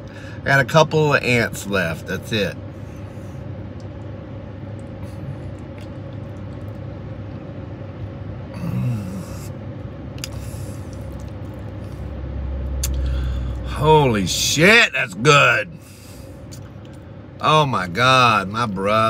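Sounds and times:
car cabin hum: 3.6s - 19.0s
quiet chewing: 4.7s - 7.4s, 10.2s - 12.1s
person humming mm: 8.5s - 9.5s.

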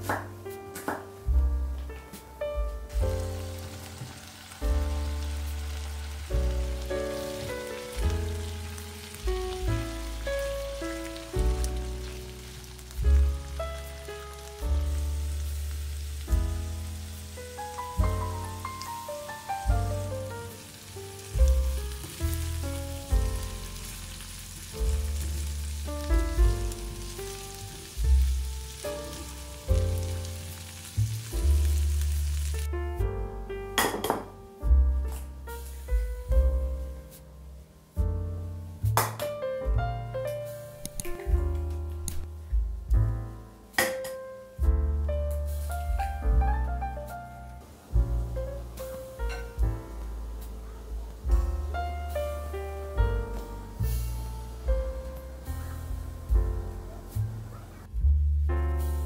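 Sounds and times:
background music with deep bass: 1.2s - 43.8s, 44.5s - 59.0s
vegetables sizzling in a pan: 2.9s - 32.7s, 35.5s - 36.1s, 45.3s - 57.4s, 58.8s - 59.0s.

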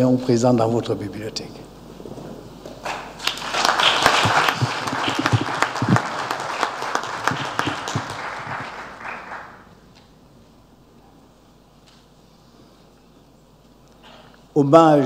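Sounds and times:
audience applauding: 2.8s - 9.7s.

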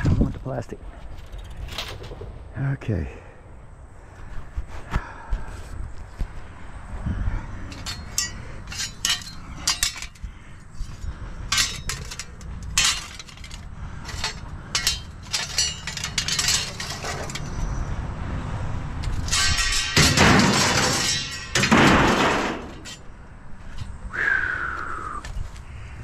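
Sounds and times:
metal straps clinking and clattering: 7.7s - 17.9s, 19.0s - 23.2s.

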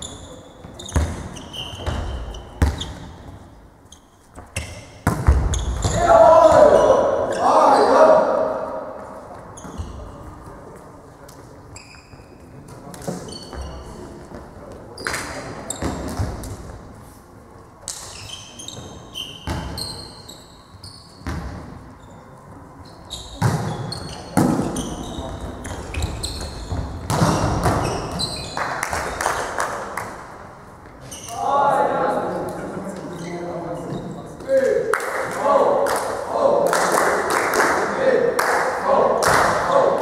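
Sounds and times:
sneakers squeaking on floor: 0.0s - 8.1s, 9.3s - 10.4s, 11.7s - 16.8s, 17.9s - 29.5s, 30.8s - 31.4s, 33.0s - 34.4s
players shouting: 5.9s - 8.9s, 31.3s - 32.3s.

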